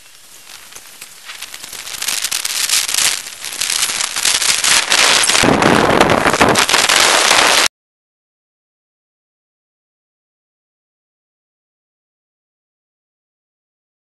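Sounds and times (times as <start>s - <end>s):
rain and wind on microphone: 0.0s - 7.7s.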